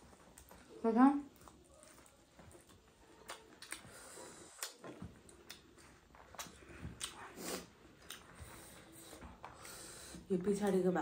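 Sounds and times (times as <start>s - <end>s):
eating smacks and clicks: 1.3s - 9.8s.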